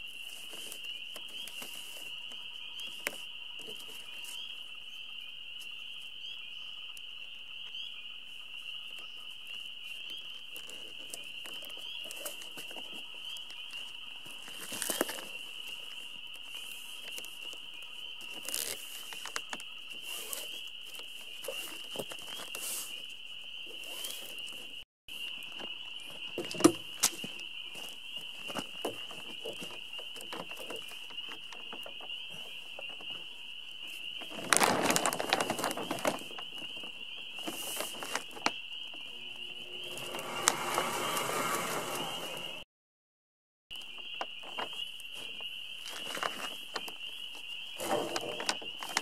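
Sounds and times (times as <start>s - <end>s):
loud plastic crinkling: 18.3s - 20.4s, 34.2s - 38.5s.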